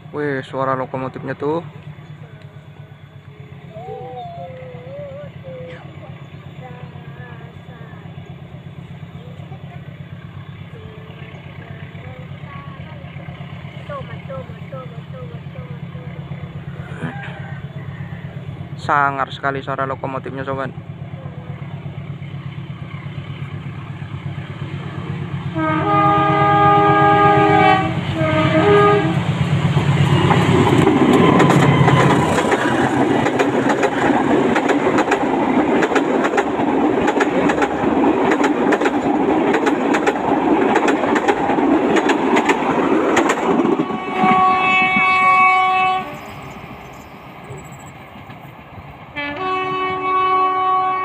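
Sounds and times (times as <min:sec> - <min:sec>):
diesel locomotive running: 0:00.0 - 0:51.0
train horn: 0:25.5 - 0:29.3, 0:30.0 - 0:32.3, 0:43.7 - 0:46.4, 0:49.1 - 0:51.0
wheels clattering over rails: 0:28.4 - 0:45.2.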